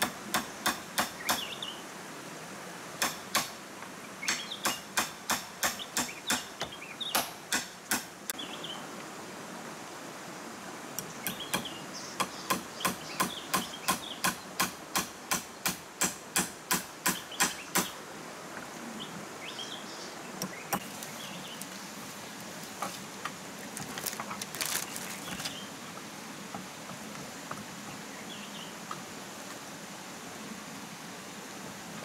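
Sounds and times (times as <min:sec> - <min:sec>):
hammer knocking on bamboo: 0:00.0 - 0:01.5, 0:04.3 - 0:08.1, 0:11.3 - 0:17.9
light clattering on bamboo: 0:20.4 - 0:28.0.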